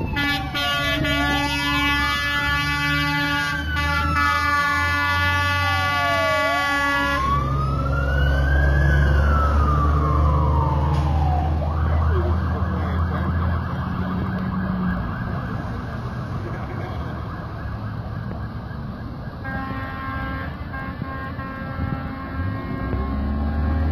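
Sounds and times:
fire engine air horn: 0.0s - 7.7s, 19.4s - 23.9s
siren wailing: 0.0s - 20.7s
diesel engine rumble: 0.0s - 23.9s
road and traffic noise: 0.0s - 23.9s.

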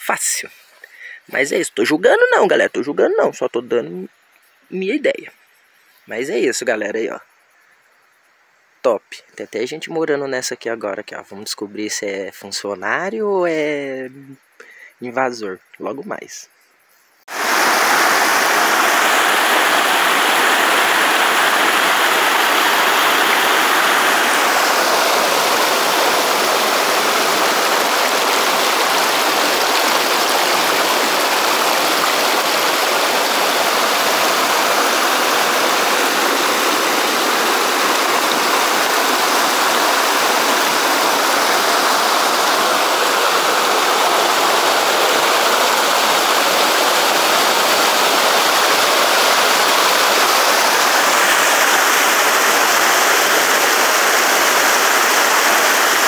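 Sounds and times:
stream rushing over rocks: 17.3s - 56.0s.

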